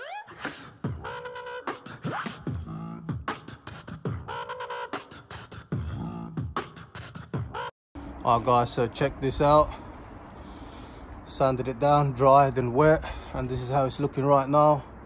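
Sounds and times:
vocal beatbox beat: 0.0 - 7.7.

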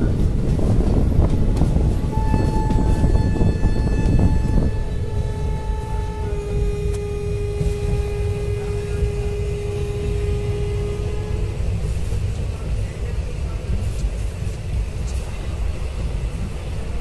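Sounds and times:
rushing air: 0.0 - 17.0
train wheels rumbling on rails: 0.0 - 17.0
steady pitched tone: 2.1 - 12.5.

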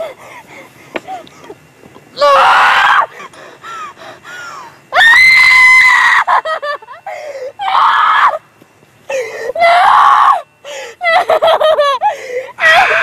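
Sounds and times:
woman screaming: 5.0 - 6.4, 9.6 - 10.4, 12.6 - 13.0
woman sobbing cries: 5.8 - 7.9, 9.1 - 13.0
woman gasping and whimpering: 7.0 - 7.6, 9.1 - 9.6, 12.0 - 12.6.

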